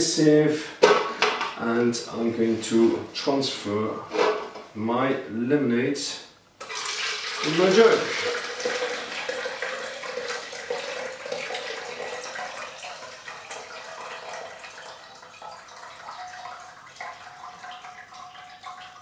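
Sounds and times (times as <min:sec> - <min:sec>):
liquid pouring into a jug: 0:06.6 - 0:19.0.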